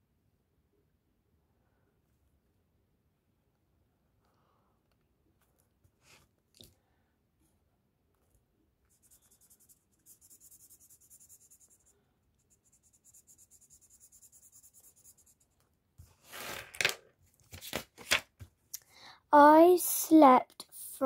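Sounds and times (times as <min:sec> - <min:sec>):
marker scratching on paper: 0:08.9 - 0:16.5
notebook page turning: 0:16.2 - 0:18.4.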